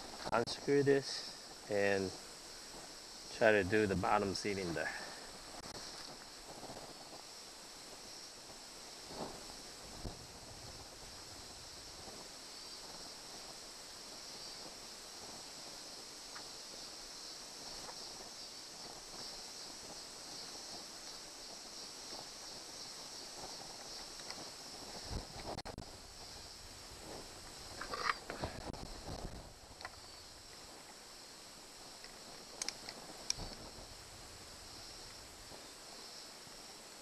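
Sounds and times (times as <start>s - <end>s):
high-pitched insect chorus: 0.0s - 37.0s
faint light clicks: 32.0s - 33.6s.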